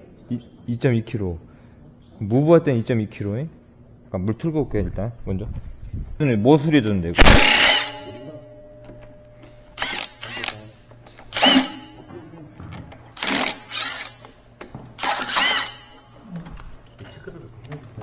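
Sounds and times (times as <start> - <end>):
impact wrench hammering: 7.2 - 10.5, 11.2 - 12.1, 15.0 - 16.0.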